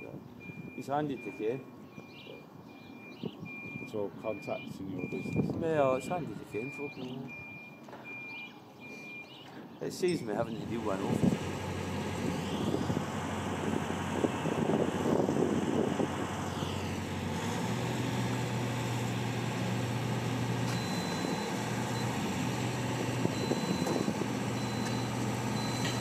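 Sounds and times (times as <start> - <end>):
short high beeps: 6.0 - 9.3
boom lift engine running: 10.5 - 26.0.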